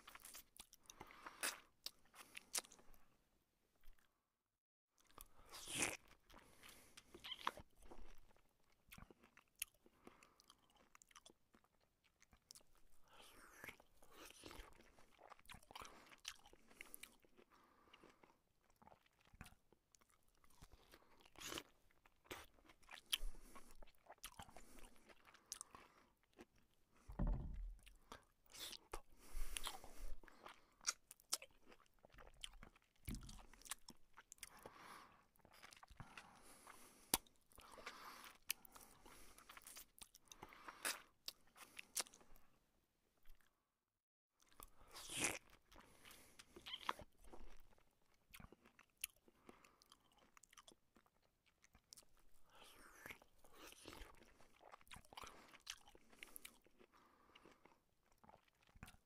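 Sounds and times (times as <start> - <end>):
man chewing crunchy food: 0.0 - 3.1, 5.0 - 42.6, 44.4 - 59.0.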